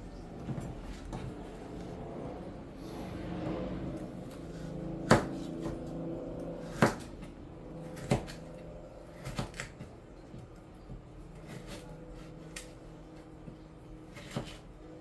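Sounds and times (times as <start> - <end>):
steady low hum: 0.0 - 15.0
knife chopping on cutting board: 4.4 - 5.9, 6.6 - 7.3, 7.9 - 12.8, 14.1 - 14.7.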